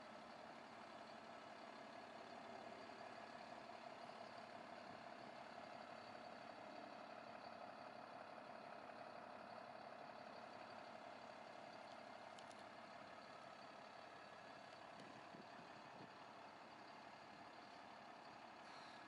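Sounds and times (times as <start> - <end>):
light ticks: 11.9 - 12.7, 14.9 - 15.2.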